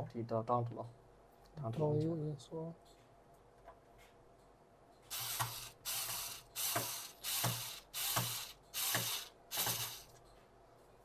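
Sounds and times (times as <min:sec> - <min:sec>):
ratcheting rasps: 0:05.1 - 0:10.2.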